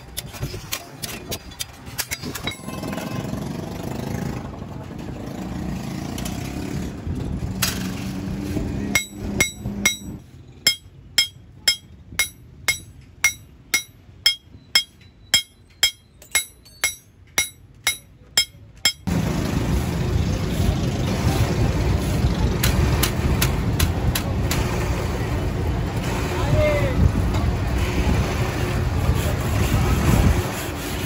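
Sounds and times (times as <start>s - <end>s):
hammer tapping metal: 8.9s - 19.1s
loud rumbling noise: 19.1s - 30.5s.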